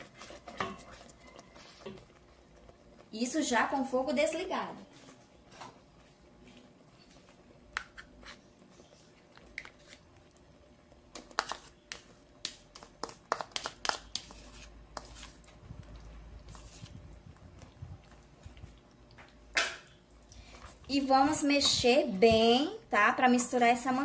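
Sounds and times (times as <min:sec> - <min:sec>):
spoon scraping and tapping pot: 0:00.2 - 0:02.1.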